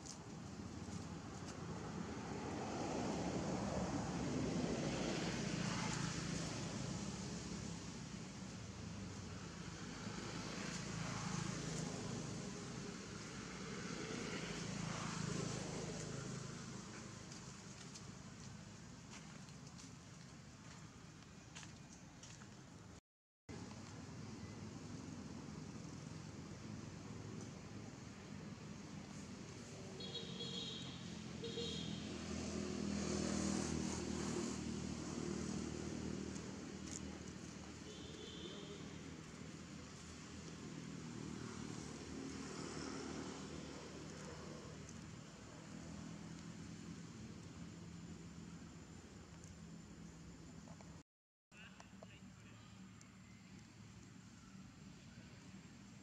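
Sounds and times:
vehicle engine passing by: 0.6s - 19.9s, 24.7s - 49.8s.

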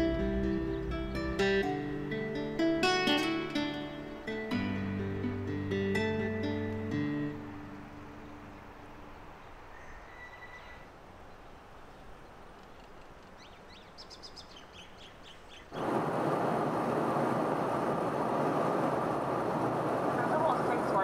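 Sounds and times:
faint outdoor air: 0.0s - 21.0s
bird chirps: 9.4s - 10.9s, 12.7s - 15.9s
aircraft cabin noise: 15.7s - 21.0s.

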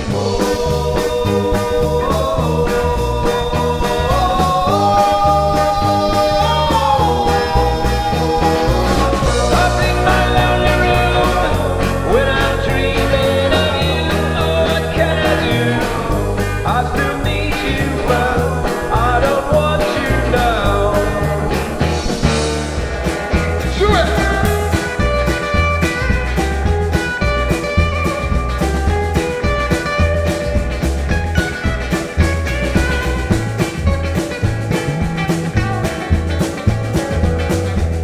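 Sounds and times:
group of voices singing: 0.0s - 22.4s
rock band playing live: 0.0s - 38.0s.

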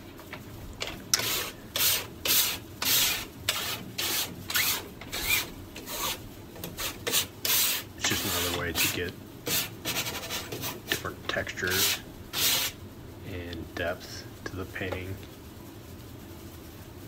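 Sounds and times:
tool scraping over canvas: 1.2s - 11.1s.

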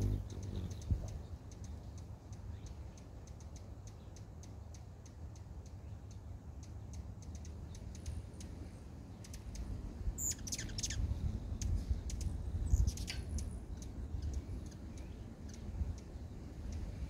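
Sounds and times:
steady low rumble: 0.0s - 3.2s
birds chirping: 0.0s - 11.2s, 12.1s - 17.0s.

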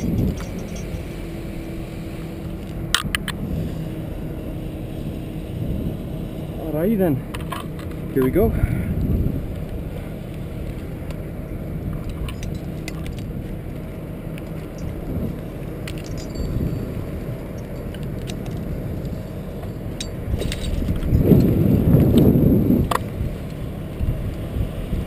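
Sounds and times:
metallic clinks of carabiners: 0.0s - 1.1s, 12.0s - 13.2s, 14.7s - 15.0s, 15.8s - 18.6s, 19.6s - 21.5s
low rumble: 0.0s - 25.0s.

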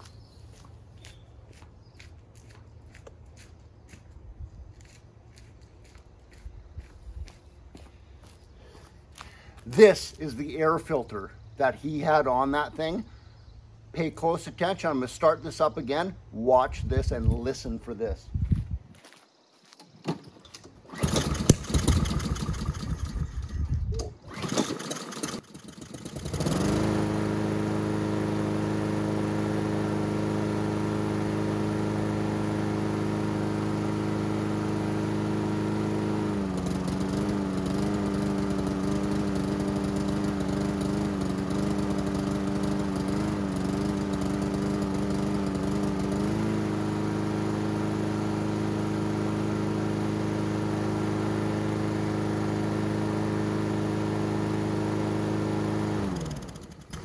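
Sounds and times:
lawn mower pull-start: 19.8s - 57.0s
lawn mower engine running: 20.1s - 57.0s.

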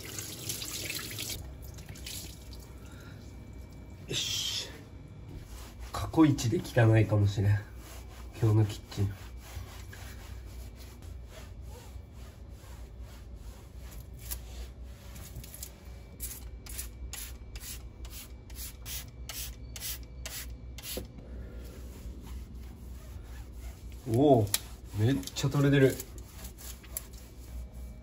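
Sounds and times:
cloth rubbing on steel stovetop: 5.3s - 16.1s, 21.4s - 28.0s.

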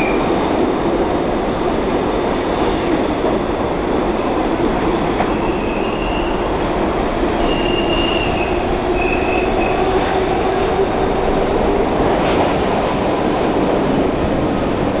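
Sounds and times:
subway train rumbling past: 0.0s - 15.0s
wheels squealing: 5.4s - 6.4s, 7.4s - 9.9s.

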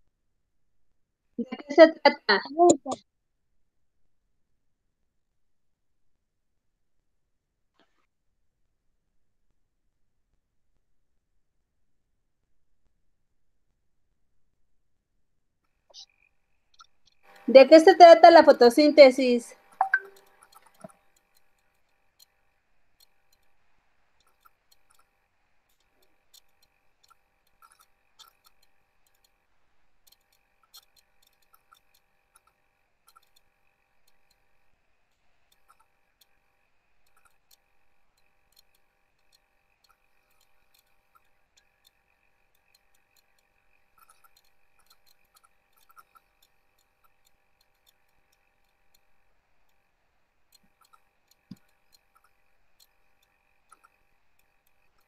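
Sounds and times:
faint clicks: 15.6s - 17.5s, 19.6s - 55.0s.

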